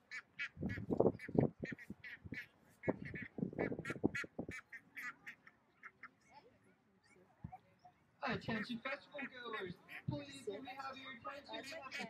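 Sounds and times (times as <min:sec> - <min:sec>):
young ducks quacking rapidly: 0:00.0 - 0:06.1, 0:08.3 - 0:10.1, 0:11.4 - 0:12.0
wind buffeting microphone: 0:00.4 - 0:04.7.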